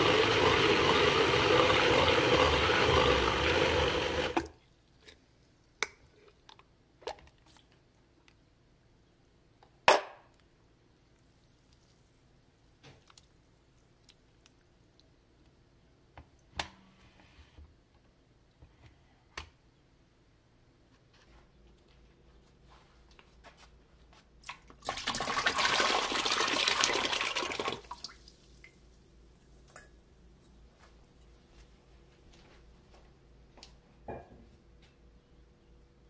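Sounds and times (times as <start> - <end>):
blender running: 0.0 - 4.5.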